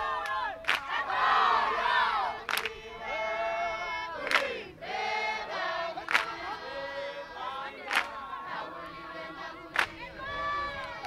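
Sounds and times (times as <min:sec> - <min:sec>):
group singing call and chorus: 0:00.0 - 0:11.0
sharp hand clap: 0:00.2 - 0:01.0, 0:02.5 - 0:02.8, 0:04.2 - 0:04.6, 0:06.0 - 0:06.4, 0:07.8 - 0:08.2, 0:09.7 - 0:10.0.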